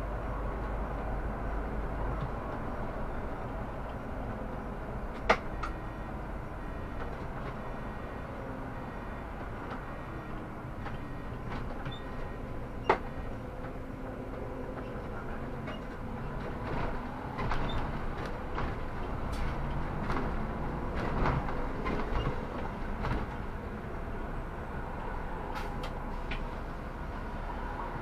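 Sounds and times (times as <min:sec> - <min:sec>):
bus engine rumble: 0:00.0 - 0:28.0
rattles and knocks: 0:14.3 - 0:23.5.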